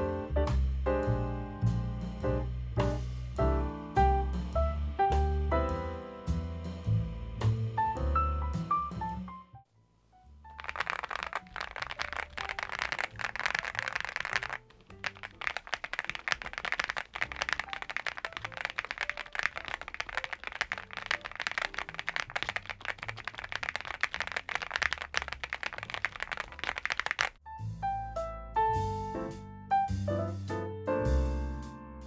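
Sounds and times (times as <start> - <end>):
fast mechanical keyboard typing: 10.5 - 27.4.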